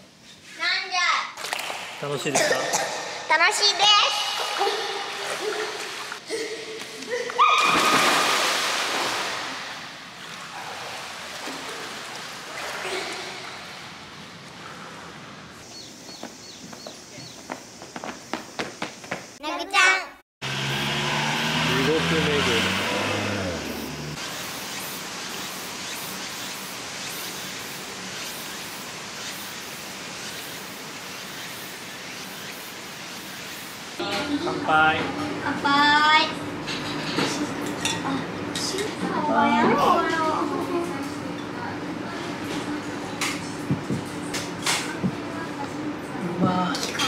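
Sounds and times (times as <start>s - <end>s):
water splashing in a pool: 1.3s - 2.3s, 2.9s - 14.6s.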